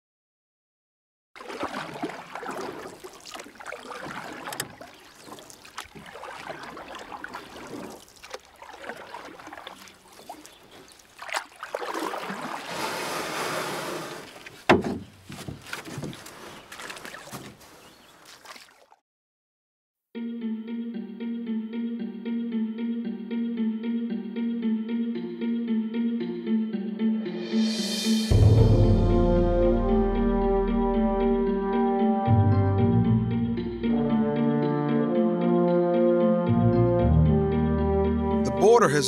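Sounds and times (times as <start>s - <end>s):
water sloshing around boat: 1.4s - 19.0s
sharp knocks on boat: 14.6s - 16.2s.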